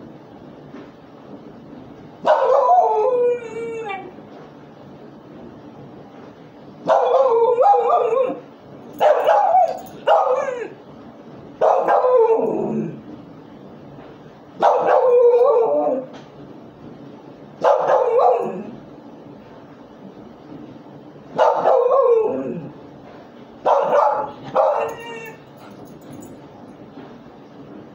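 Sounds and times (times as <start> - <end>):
dog howling barks: 2.2 - 4.2, 6.8 - 10.8, 11.6 - 13.0, 14.6 - 16.1, 17.6 - 18.8, 21.4 - 22.8, 23.6 - 25.5.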